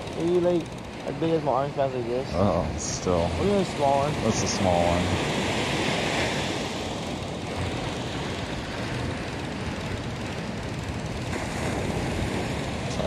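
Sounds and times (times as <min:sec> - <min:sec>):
small waves breaking on a beach: 0:03.0 - 0:13.0.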